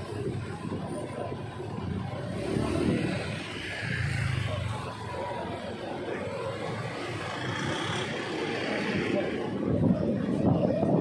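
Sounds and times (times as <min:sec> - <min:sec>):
scooter and car engines: 0:00.0 - 0:11.0.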